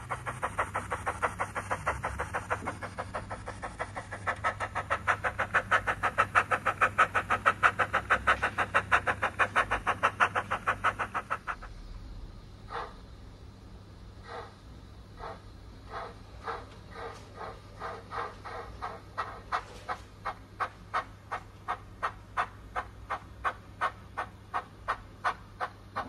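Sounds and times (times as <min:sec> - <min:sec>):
steam locomotive chuffs from speaker: 0:00.0 - 0:11.7.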